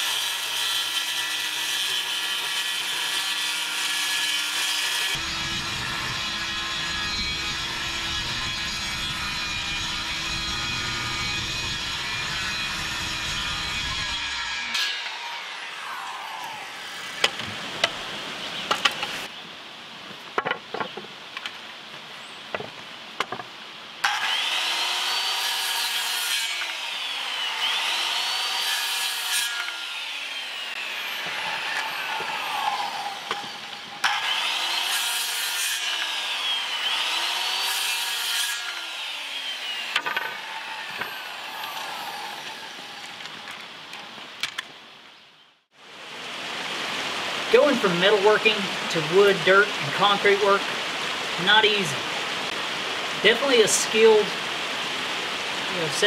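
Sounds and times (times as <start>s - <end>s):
circular saw cutting wood: 0.0s - 17.6s, 24.0s - 43.3s, 47.5s - 56.0s
boards knocking and clicking: 20.4s - 21.5s, 22.5s - 23.5s.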